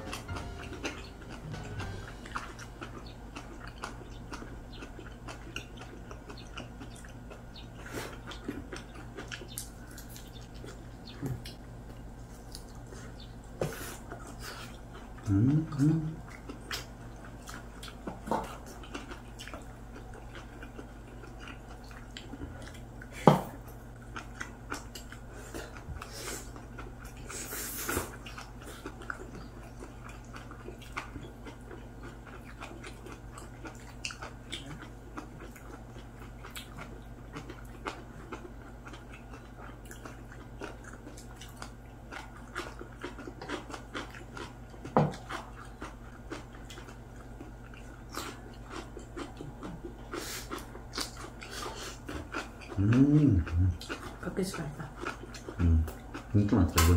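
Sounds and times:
chewing and mouth sounds: 0.0 - 56.9
steady low hum: 0.0 - 56.9.

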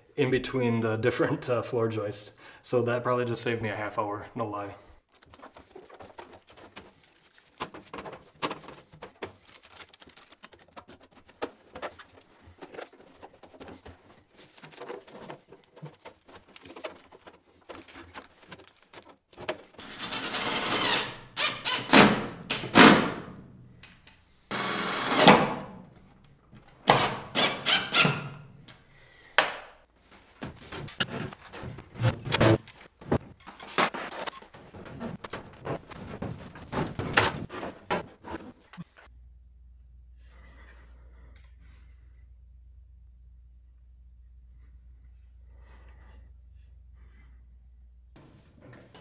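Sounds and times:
foil tape rustling: 5.1 - 19.8, 30.1 - 38.9
tape ripping off roll: 30.5 - 38.7.

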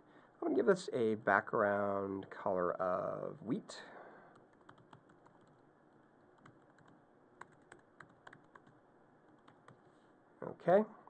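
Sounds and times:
keyboard typing clicks: 4.4 - 5.6, 6.4 - 8.8.

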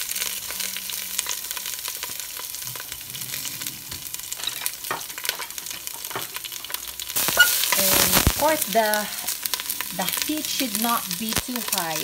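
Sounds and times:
beans sizzling in oil: 0.0 - 12.0.

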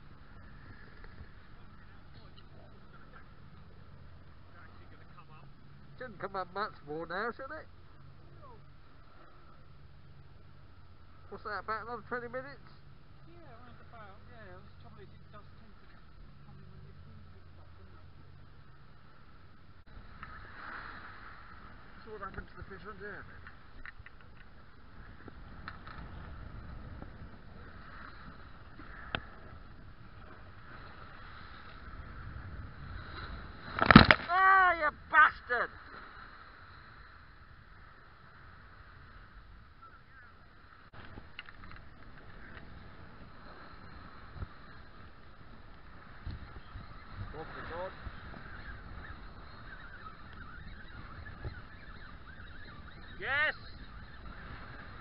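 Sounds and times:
outdoor background noise: 0.0 - 55.0
nearby bird call: 39.7 - 40.5, 46.3 - 55.0
flock of birds calling: 46.4 - 55.0.

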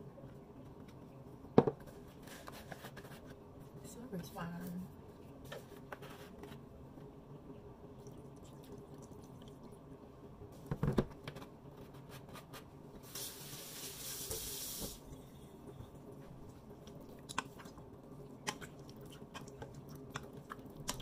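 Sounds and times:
steady hiss: 13.0 - 15.7.

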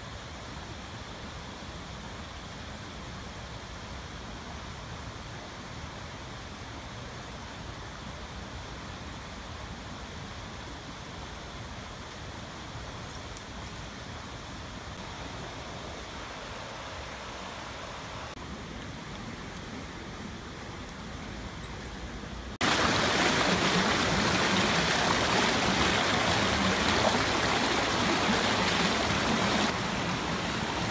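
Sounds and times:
faint outdoor hiss: 0.0 - 30.9
stream rushing over rocks: 15.0 - 30.9.

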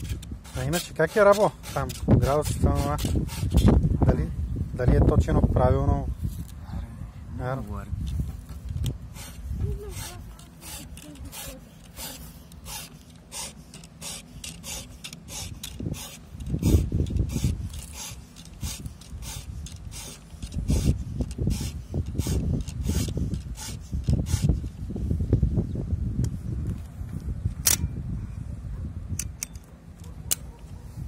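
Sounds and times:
file rasping on saw chain: 0.0 - 3.8, 9.1 - 24.7.

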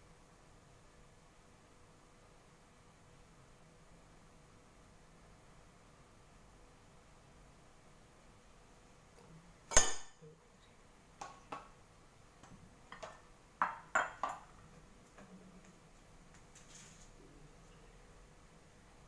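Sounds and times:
kitchenware clattering: 9.7 - 10.2, 12.9 - 14.5.

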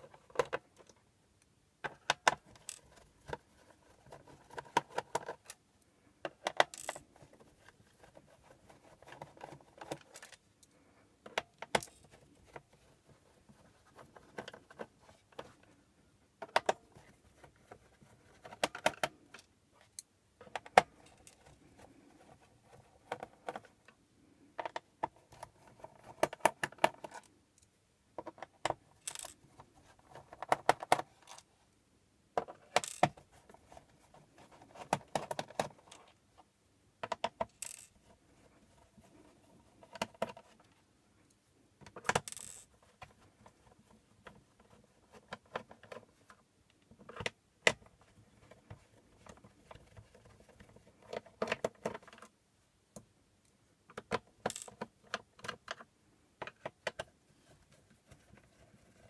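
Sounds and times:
screwdriver clicks and scrapes: 29.0 - 29.4.

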